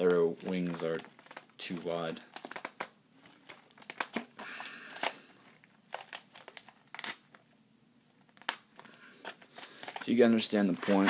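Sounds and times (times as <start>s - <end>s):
cardboard crinkling: 0.0s - 7.4s, 8.2s - 11.0s.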